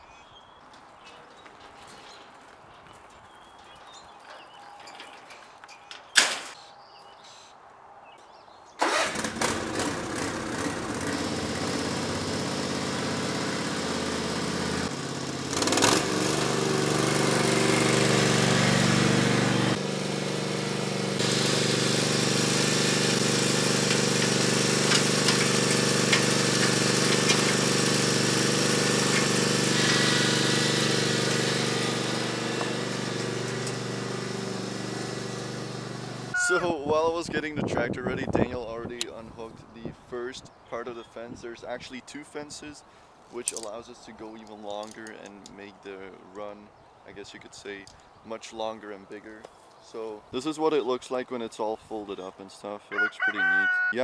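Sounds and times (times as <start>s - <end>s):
tyres on gravel: 0.4s - 7.2s, 8.8s - 36.8s, 43.3s - 45.6s
lawn mower engine running: 8.8s - 36.8s.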